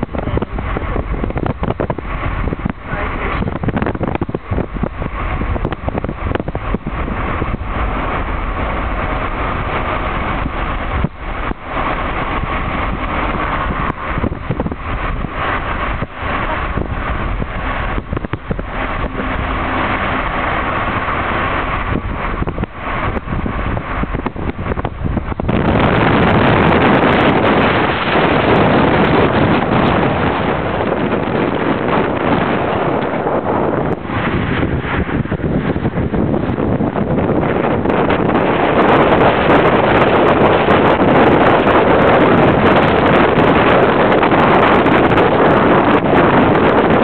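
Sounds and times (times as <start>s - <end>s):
car road and engine noise: 0.0s - 47.0s
wind on microphone: 0.0s - 47.0s.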